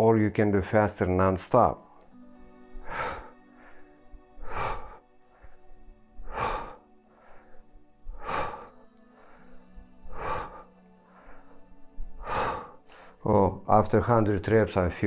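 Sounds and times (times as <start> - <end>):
man breathing hard: 2.0 - 13.3.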